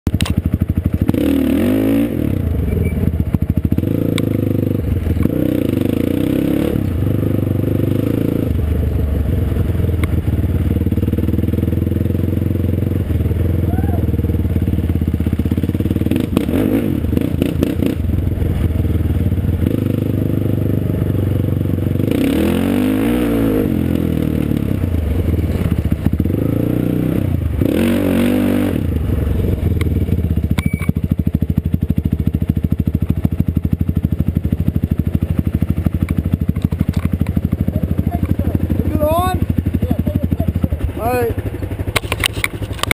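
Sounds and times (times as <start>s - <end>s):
off-road vehicle engine revving: 0.2s - 30.5s, 32.0s - 42.9s
rattles and clatter: 36.0s - 37.4s, 41.9s - 42.9s.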